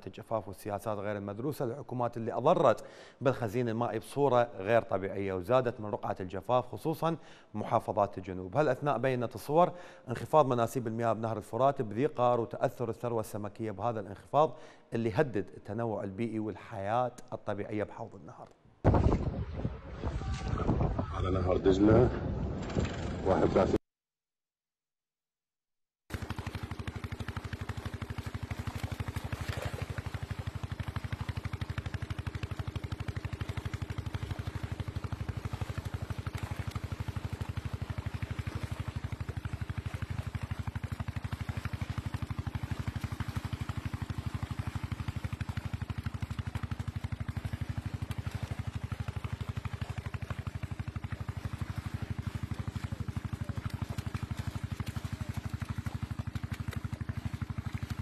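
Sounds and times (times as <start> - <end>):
small engine puttering: 22.2 - 23.8, 26.1 - 58.0.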